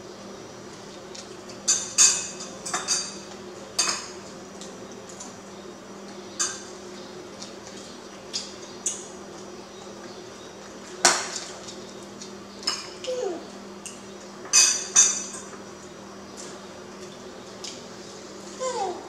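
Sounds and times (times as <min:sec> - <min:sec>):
spoon clinking on plates: 0:13.8 - 0:15.6.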